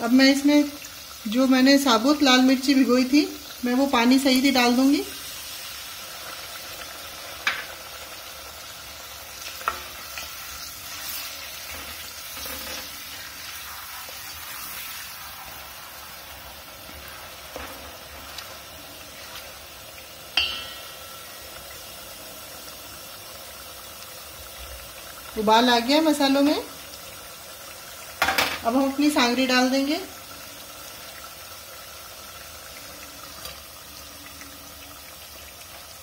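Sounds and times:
spice mixture sizzling and bubbling: 0.0 - 36.0
spoon knocking on pot: 20.4 - 21.8.

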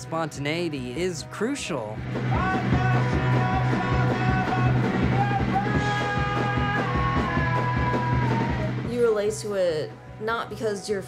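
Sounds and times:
driving drum beat: 0.0 - 9.9
man singing: 2.3 - 8.7.

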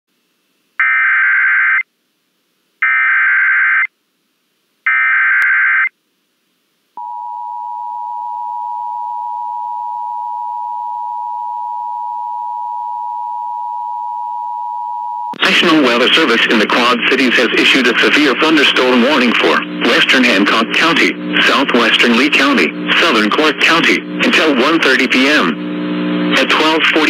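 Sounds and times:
steady warning alarm tone: 7.0 - 15.4.

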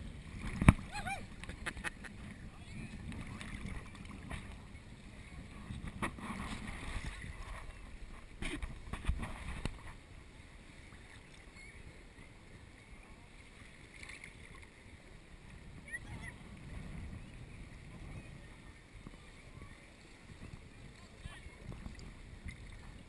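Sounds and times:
water splashes and knocks: 0.0 - 2.3, 3.0 - 4.7, 5.7 - 10.0
sea water lapping: 0.0 - 23.0.

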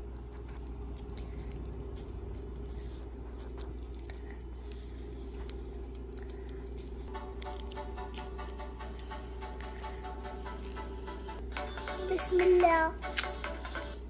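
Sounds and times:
foil wrapper crinkling: 0.0 - 9.1
background music: 7.1 - 14.0.

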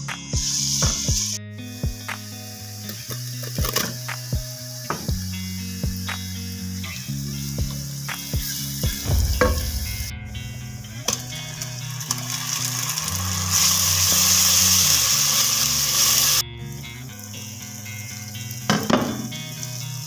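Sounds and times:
food sizzling in hot oil: 2.2 - 9.1, 11.2 - 16.4, 17.2 - 20.0.

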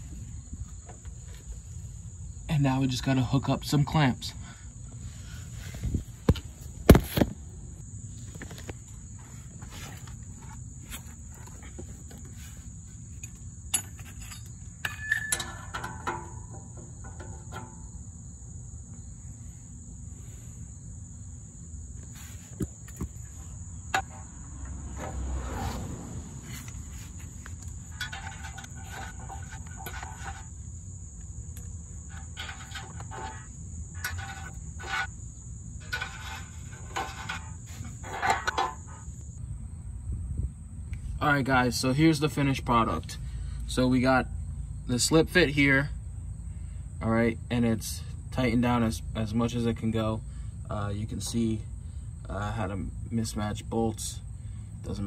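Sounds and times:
high insect drone: 0.0 - 55.0
metal clinks and knocks: 13.1 - 18.1, 26.5 - 30.6, 32.0 - 35.1, 35.8 - 39.1.

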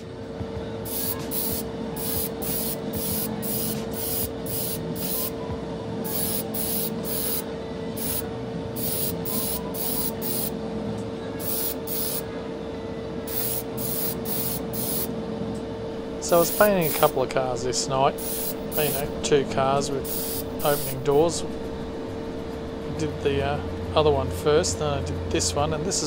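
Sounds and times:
steady hum: 0.0 - 26.0
airbrush spraying hiss: 0.9 - 5.3, 6.1 - 7.4, 8.0 - 8.2, 8.8 - 10.5, 11.4 - 12.2, 13.3 - 15.1, 16.3 - 17.1, 18.2 - 19.1, 20.0 - 21.1.

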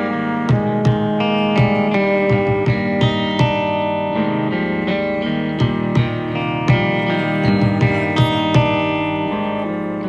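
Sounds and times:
clean electric guitars: 0.0 - 10.0
live rock band playing: 0.0 - 10.0.

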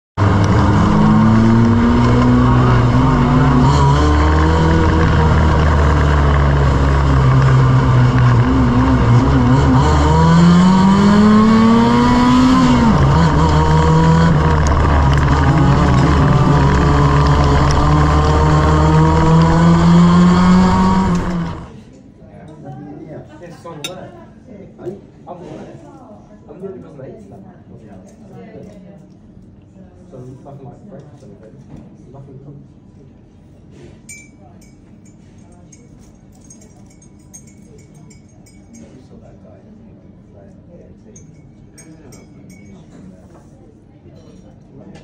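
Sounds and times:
race car engine revving: 0.2 - 21.7.

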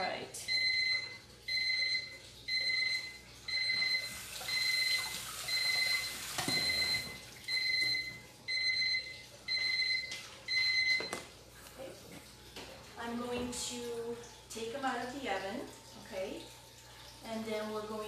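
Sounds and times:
oven timer beeping: 0.4 - 11.2.

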